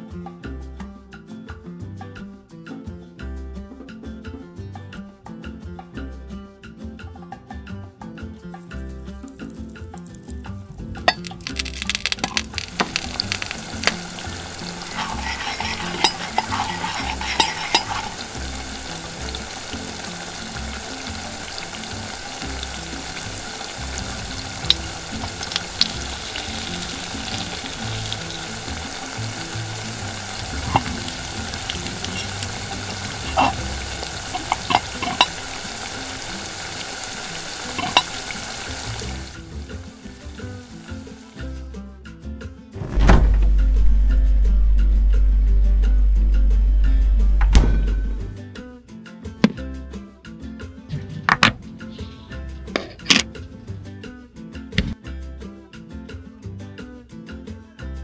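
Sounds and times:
butter sizzling in a wok: 8.6 - 41.6.

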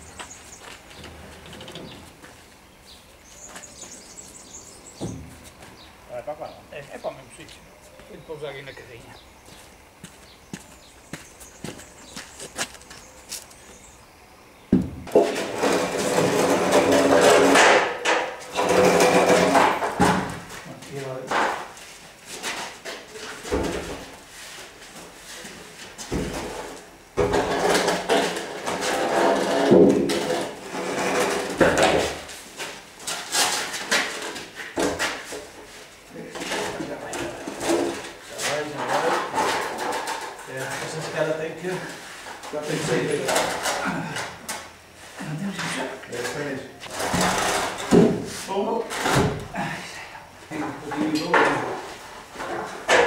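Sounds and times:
wooden beam scraping concrete wall: 15.0 - 20.2, 27.2 - 32.3, 46.8 - 48.2.

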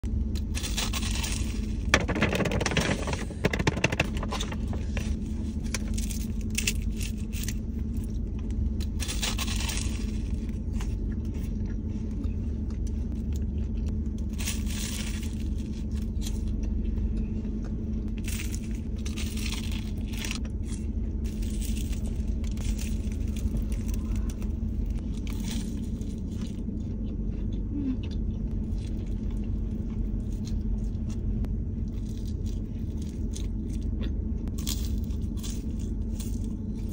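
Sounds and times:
low rumble inside a car: 0.0 - 36.9
crunchy bites and chewing: 0.1 - 36.9.

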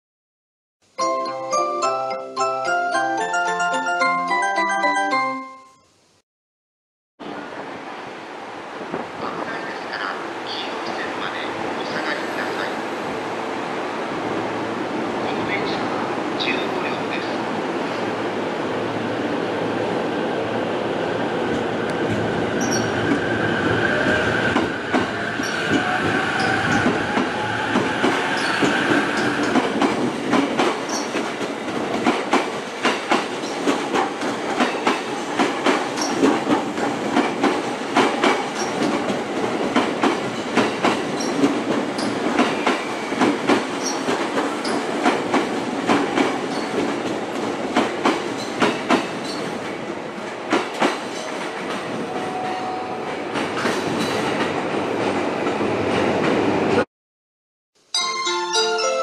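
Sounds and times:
train wheels clicking over rail joints: 24.6 - 49.7.

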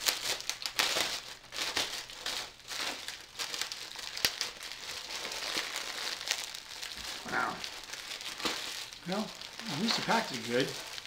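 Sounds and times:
plastic bag crinkling: 0.0 - 11.0
plastic bag snap: 8.3 - 8.9.

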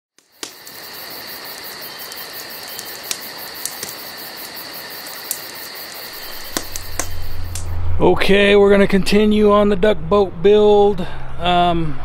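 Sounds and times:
campfire crackling: 0.1 - 7.8.

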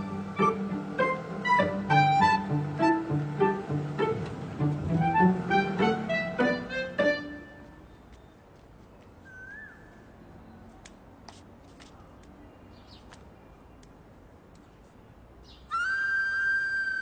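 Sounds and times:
held flute note: 0.0 - 7.6, 15.7 - 17.0.

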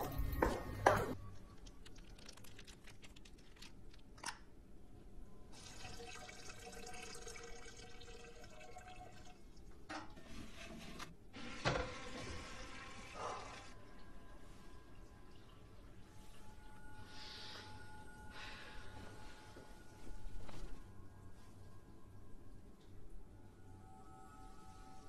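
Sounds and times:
urine trickling into toilet bowl: 1.1 - 4.2, 5.6 - 9.8.

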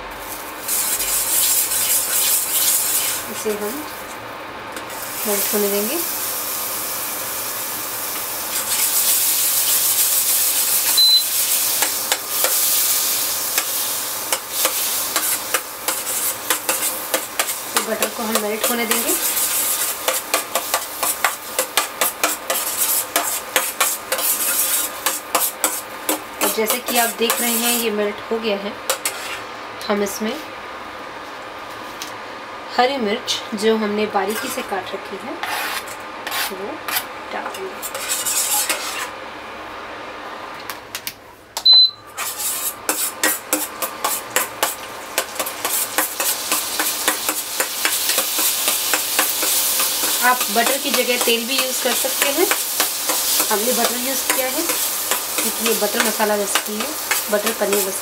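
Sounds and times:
butter sizzling: 0.0 - 28.0, 42.1 - 58.0
spoon scraping metal pan: 0.7 - 3.4, 14.3 - 27.8, 28.9 - 29.4, 34.3 - 34.7, 35.4 - 39.1, 42.2 - 58.0.

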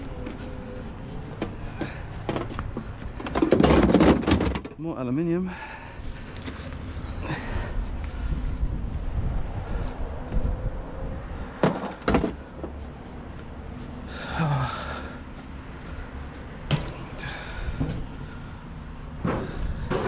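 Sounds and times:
scrap metal knocks and clanks: 1.3 - 4.8, 19.2 - 20.0.

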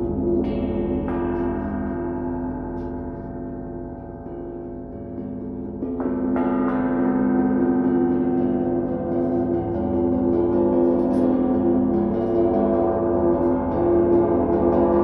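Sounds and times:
metal sculpture ringing like a gong: 0.0 - 15.0.

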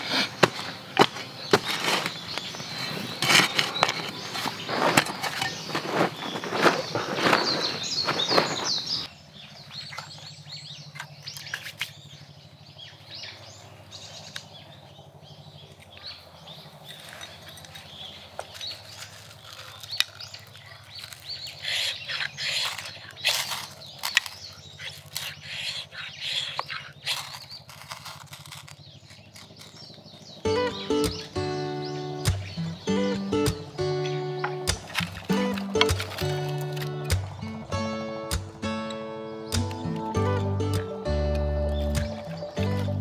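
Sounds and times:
hands scraping in soil: 0.0 - 9.1, 16.8 - 37.8.

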